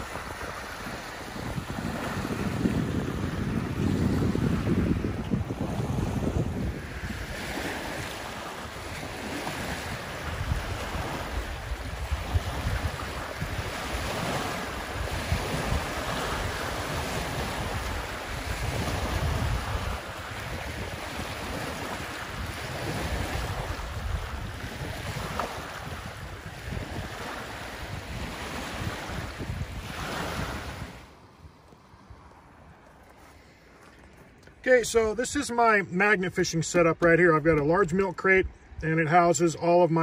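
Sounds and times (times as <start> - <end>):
wind buffeting microphone: 0.0 - 35.2
lake waves lapping on shore: 0.0 - 40.0.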